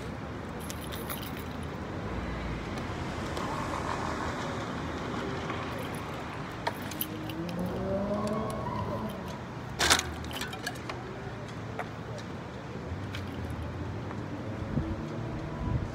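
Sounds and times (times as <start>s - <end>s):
road traffic noise: 0.0s - 15.9s
car engine pulling away: 7.1s - 9.4s.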